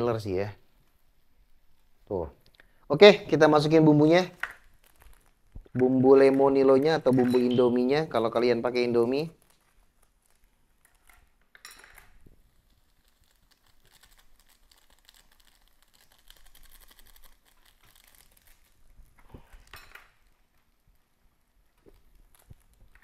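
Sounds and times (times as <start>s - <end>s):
plastic sachets crinkling: 0.7s - 23.0s.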